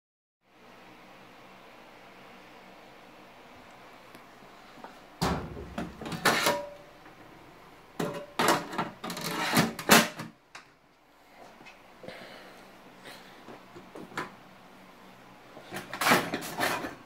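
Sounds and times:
metal cover clattering: 5.2s - 6.8s, 8.0s - 10.3s, 15.8s - 17.0s.

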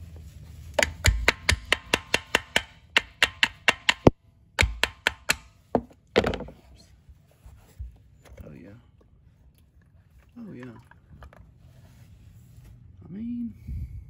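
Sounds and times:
sharp taps on metal cover: 0.8s - 6.4s.

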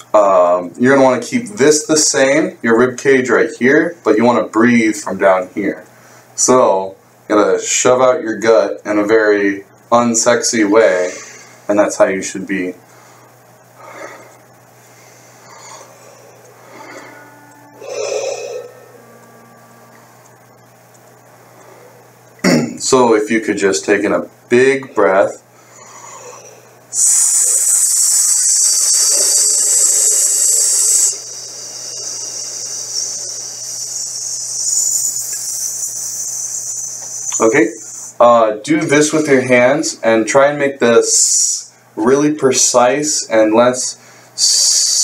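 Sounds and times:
man breathing: 12.9s - 19.1s, 25.5s - 36.2s
person hissing through teeth: 13.8s - 19.2s, 25.8s - 38.2s, 44.4s - 45.0s.

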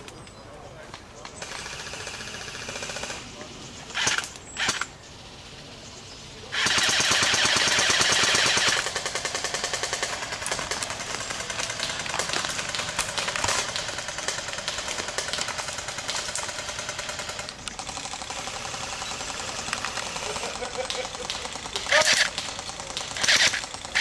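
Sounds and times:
airsoft guns firing rapidly: 1.4s - 3.3s, 4.0s - 4.9s, 6.5s - 24.0s.

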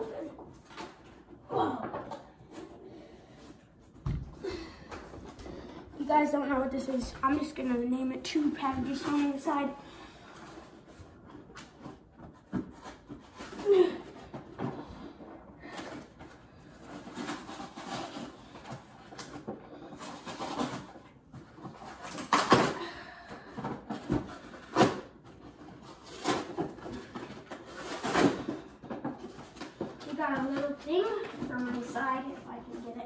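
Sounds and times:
packaging rustling and scraping: 6.6s - 22.8s, 23.4s - 33.0s.

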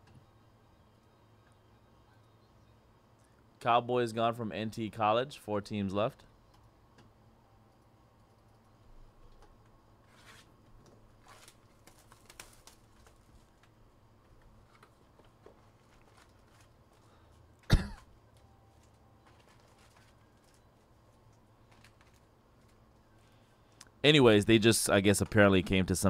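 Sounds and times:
faint clicks and taps: 8.2s - 9.8s
person coughing: 17.6s - 18.1s.

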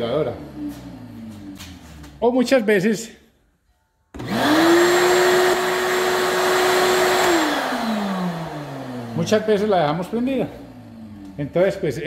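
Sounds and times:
vacuum motor whining: 4.2s - 11.9s.

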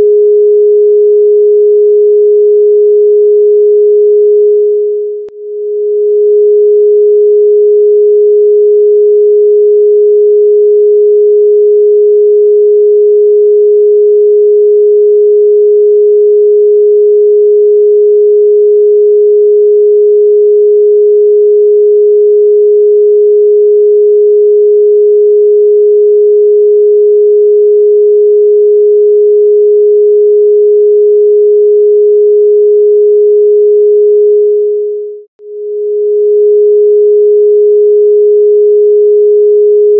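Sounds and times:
electronic sine tone: 0.0s - 39.9s.

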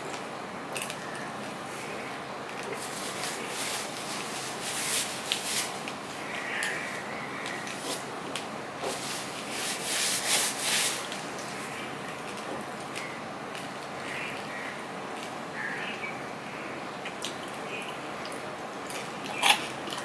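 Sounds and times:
hand rustling food on steel plate: 2.7s - 6.1s, 8.8s - 12.5s
tissue rustling against face: 2.7s - 6.2s, 8.8s - 12.4s.

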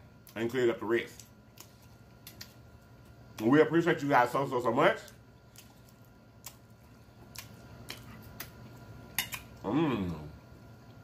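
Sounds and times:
person chewing food: 5.4s - 9.6s
person humming mmm: 9.6s - 10.3s.

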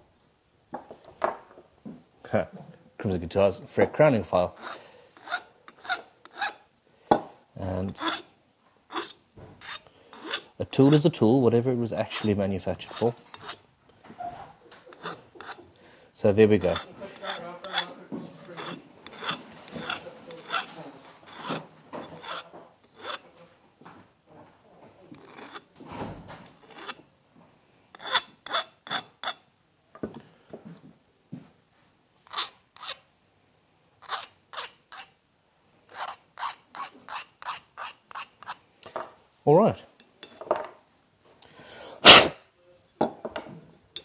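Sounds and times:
hand file scraping metal: 4.3s - 6.7s, 7.8s - 8.3s, 8.9s - 11.2s, 12.0s - 13.6s, 14.9s - 15.7s, 16.6s - 23.3s, 25.1s - 27.0s, 27.9s - 29.4s, 32.3s - 33.0s, 34.0s - 35.2s, 35.9s - 38.6s.

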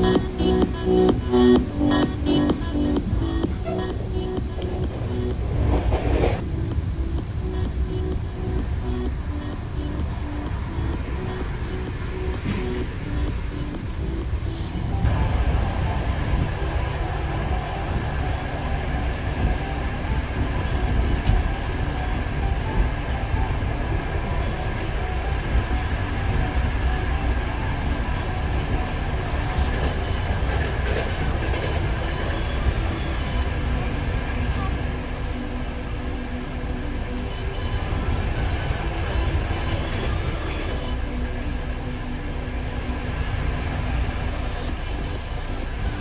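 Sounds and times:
train wheels rumbling on track: 0.0s - 35.4s
faint train whine: 0.0s - 46.0s.

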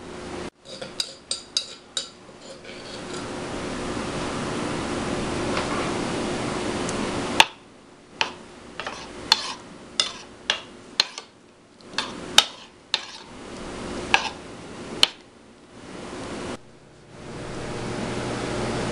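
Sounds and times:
spoon stirring thick sauce: 0.6s - 3.3s, 8.2s - 13.4s, 14.1s - 14.4s
spoon clinking against ceramic bowl: 0.7s - 2.6s.

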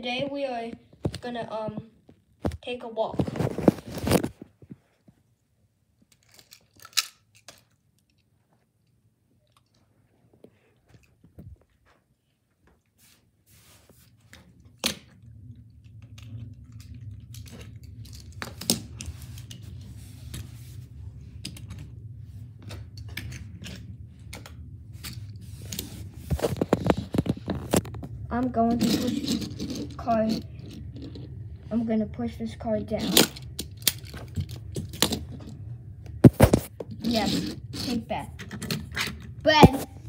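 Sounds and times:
low rumble: 14.6s - 37.0s.

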